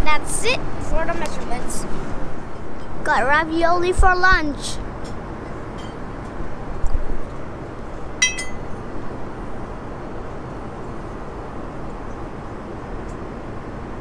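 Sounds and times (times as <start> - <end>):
fork clinking on porcelain plate: 8.2 - 8.6.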